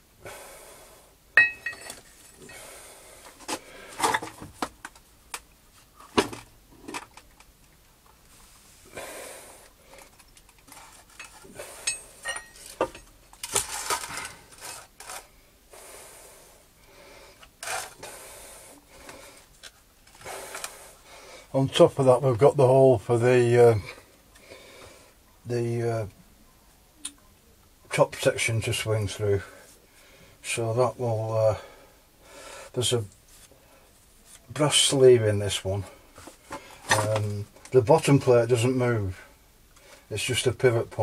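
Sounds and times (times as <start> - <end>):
ringing metal clink: 1.4 - 1.9, 11.8 - 12.7
metal parts clanking and scraping: 1.4 - 2.5, 10.6 - 15.3.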